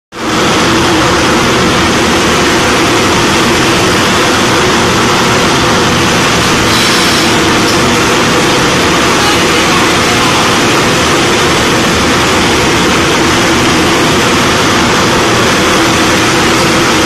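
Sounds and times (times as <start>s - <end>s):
forging press drone and hiss: 0.2s - 17.0s
press ram bright hiss: 6.6s - 7.8s.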